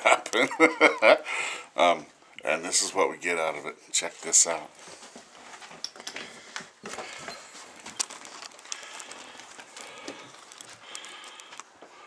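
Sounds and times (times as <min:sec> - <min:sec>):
camera handling rustling: 0:05.6 - 0:11.8.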